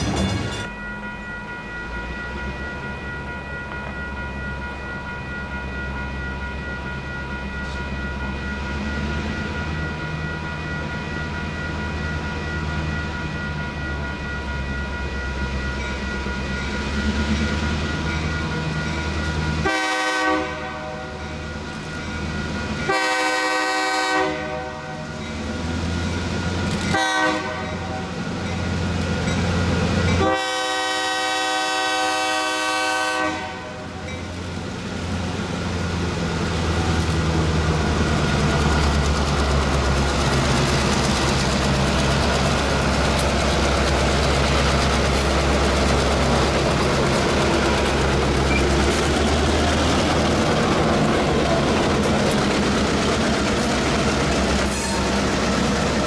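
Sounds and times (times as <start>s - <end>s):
diesel locomotive rumbling: 0.0s - 56.0s
locomotive air horn blasts: 19.6s - 21.1s, 22.9s - 25.0s, 26.9s - 28.0s, 30.2s - 33.8s.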